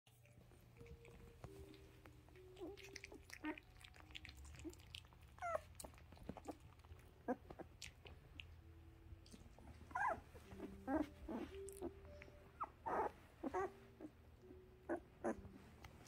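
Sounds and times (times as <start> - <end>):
low steady hum: 0.1 - 16.0
puppies squeaking and whimpering: 0.8 - 8.4, 9.7 - 14.2, 14.8 - 15.6
puppy wavering squeal: 5.4 - 5.7, 9.9 - 11.6, 12.6 - 13.8.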